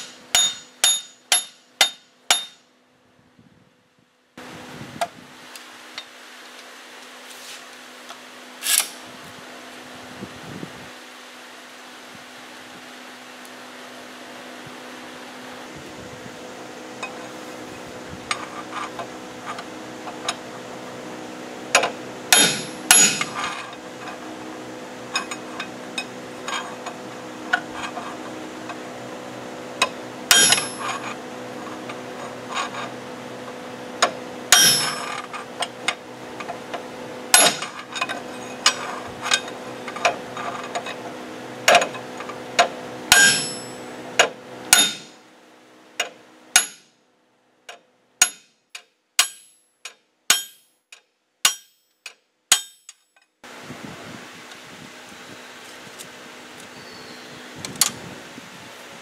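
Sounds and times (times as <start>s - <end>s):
hammer striking steel rod: 0.0s - 2.6s, 21.8s - 23.4s, 30.3s - 31.0s, 34.5s - 35.2s, 37.3s - 37.7s, 43.1s - 43.8s, 44.7s - 45.2s, 46.5s - 46.9s, 48.2s - 50.7s, 51.4s - 53.0s
steady hum: 0.0s - 48.4s.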